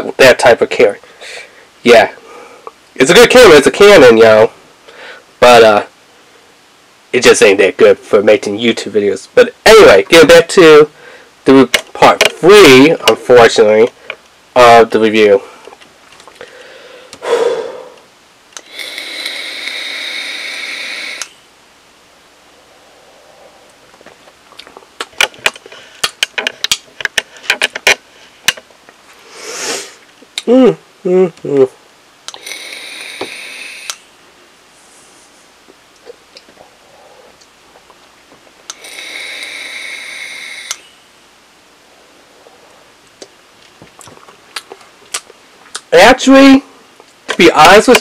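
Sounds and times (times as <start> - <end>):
breathy inhale: 1.0 - 2.7, 4.9 - 5.3, 10.9 - 11.4, 16.4 - 21.4, 29.2 - 30.0, 32.4 - 34.0, 36.6 - 37.4, 38.8 - 41.0
vape hissing with whistle: 18.6 - 21.4, 29.3 - 30.0, 32.3 - 34.1, 38.7 - 41.0.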